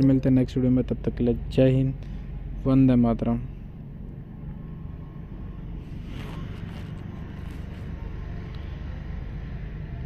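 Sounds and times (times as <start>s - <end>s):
low background rumble: 0.0s - 10.0s
faint rustling scrapes: 5.8s - 8.2s.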